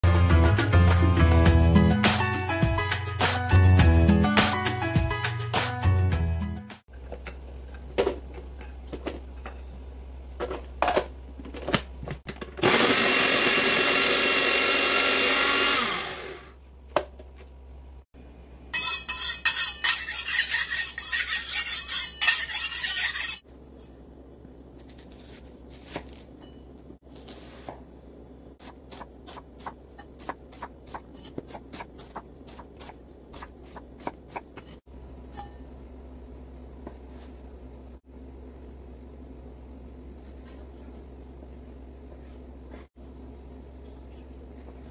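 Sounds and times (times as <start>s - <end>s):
food processor whirring: 12.5s - 16.6s
knife scraping on sharpening stone: 18.8s - 23.4s
low steady hum: 23.4s - 44.9s.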